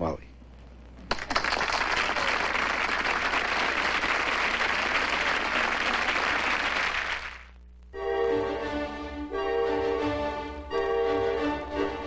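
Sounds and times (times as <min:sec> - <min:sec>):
studio audience applauding: 0:01.1 - 0:07.6.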